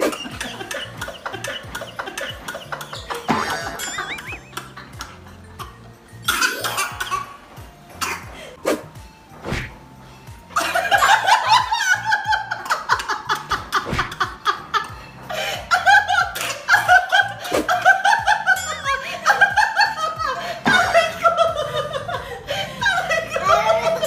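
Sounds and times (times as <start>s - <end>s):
hard laughter: 0.0s - 5.4s
background music: 0.0s - 24.0s.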